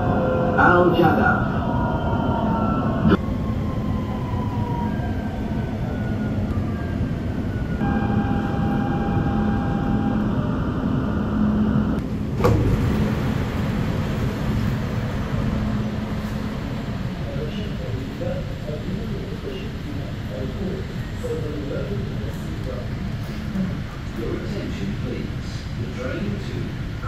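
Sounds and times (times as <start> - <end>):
train low rumble: 0.0 - 27.0
steady tone: 7.8 - 12.0.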